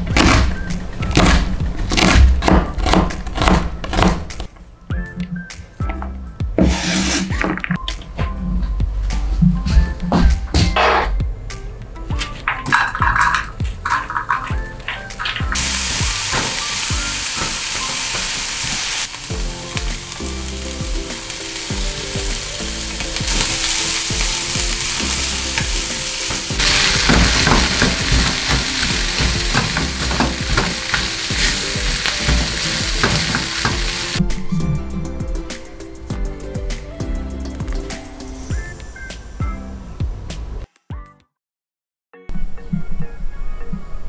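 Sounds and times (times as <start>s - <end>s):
spatula turning food in pan: 15.3s - 34.2s
vegetables sizzling in frying pan: 15.5s - 34.2s.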